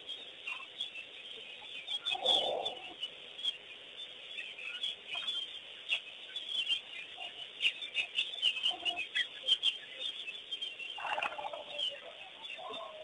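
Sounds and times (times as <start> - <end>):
birds chattering and calling: 0.0 - 13.0
pulsed fowl-like call: 1.6 - 3.1, 7.1 - 9.8, 11.0 - 13.0.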